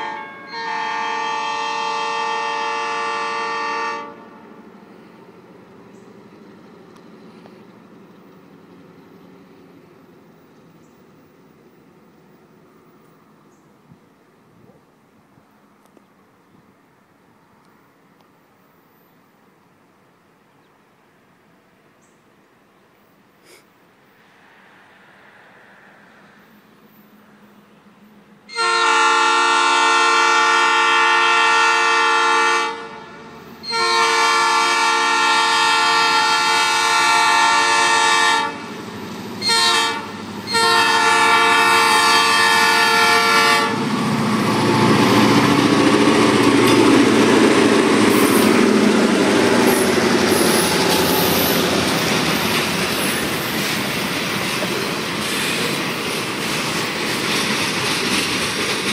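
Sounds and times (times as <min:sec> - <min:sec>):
locomotive air horn blasts: 0:00.0 - 0:04.6, 0:28.5 - 0:38.8, 0:39.4 - 0:43.9, 0:44.5 - 0:45.3
diesel engines rumbling: 0:00.0 - 0:19.1, 0:23.4 - 0:58.9
freight cars clacking on rails: 0:43.7 - 0:58.9.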